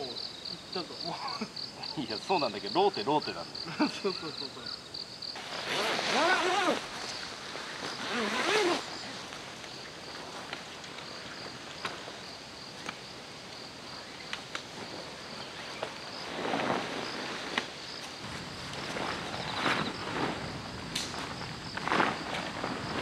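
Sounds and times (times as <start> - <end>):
insects chirping: 0.0 - 23.0
rustle of movement: 5.2 - 23.0.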